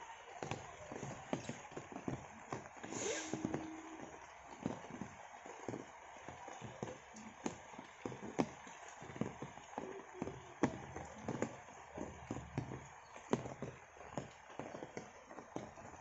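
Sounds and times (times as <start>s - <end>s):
raindrops tapping on leaves: 0.0s - 16.0s
light rain hiss: 2.4s - 6.5s.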